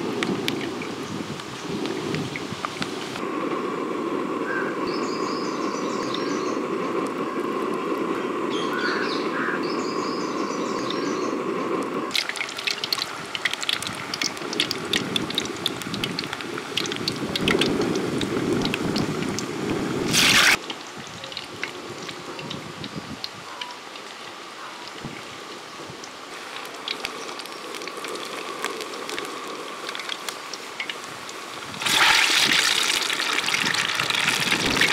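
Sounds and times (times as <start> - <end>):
deep-frying in hot oil: 0.0 - 3.2, 12.1 - 34.9.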